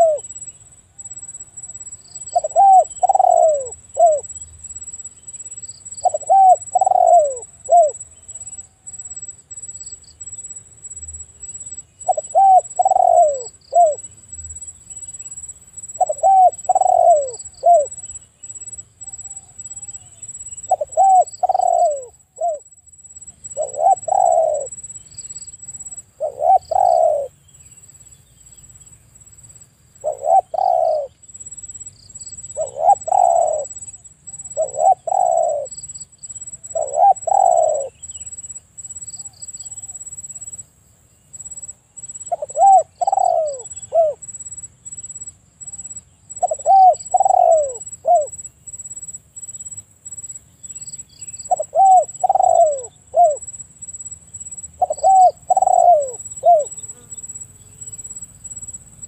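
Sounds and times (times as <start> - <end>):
dove cooing: 0.0 - 0.3, 1.2 - 4.4, 6.0 - 8.0, 12.0 - 14.1, 16.0 - 18.0, 19.1 - 22.6, 23.4 - 24.8, 25.7 - 27.4, 30.0 - 31.2, 32.5 - 35.7, 36.7 - 38.0, 42.3 - 44.2, 45.7 - 48.4, 51.4 - 53.5, 54.7 - 57.1.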